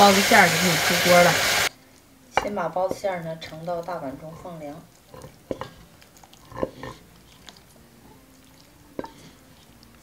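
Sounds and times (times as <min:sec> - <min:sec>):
wet food plopping: 0:02.4 - 0:10.0.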